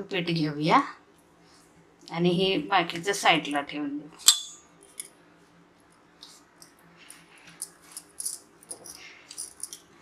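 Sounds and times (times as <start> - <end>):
glass bangles clinking: 7.6 - 9.9.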